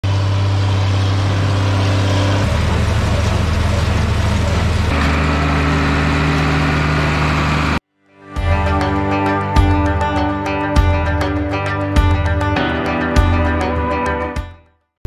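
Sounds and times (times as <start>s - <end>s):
tractor diesel engines running: 0.0s - 7.8s.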